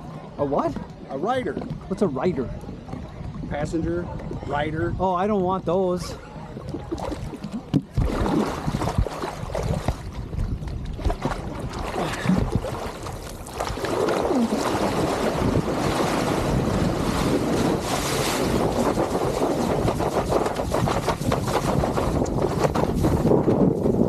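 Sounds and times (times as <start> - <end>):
rush of spray and wind: 6.2 - 24.0
water sloshing and splashing: 6.4 - 24.0.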